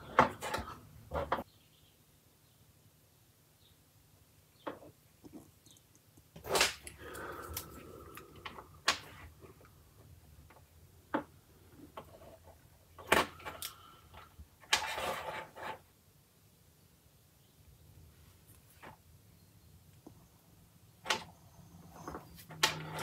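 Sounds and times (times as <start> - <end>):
handling and scraping: 0.0 - 1.5, 10.5 - 15.9.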